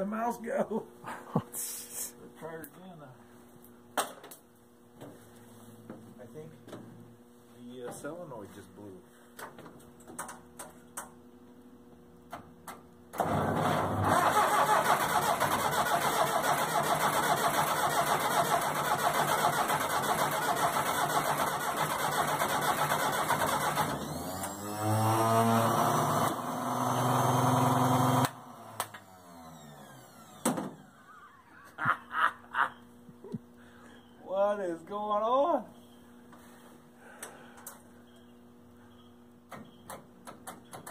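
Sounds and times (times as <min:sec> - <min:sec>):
tractor diesel engine running: 0:13.2 - 0:24.4.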